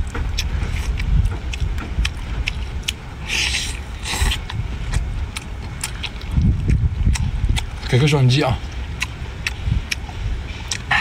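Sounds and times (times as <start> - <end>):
steady low rumble: 0.0 - 11.0
sucking slurps: 2.2 - 8.0.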